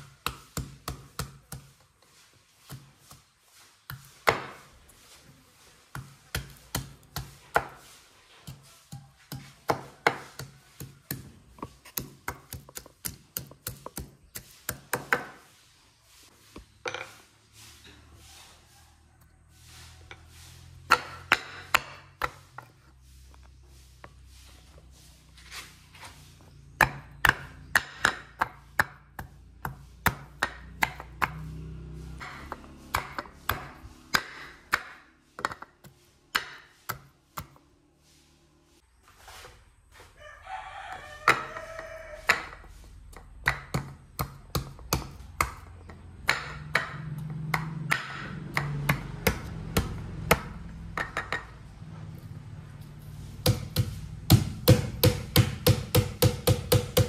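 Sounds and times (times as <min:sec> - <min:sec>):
rooster crowing: 0:18.2 - 0:20.0, 0:40.0 - 0:42.7
knife chopping on cutting board: 0:53.4 - 0:57.0.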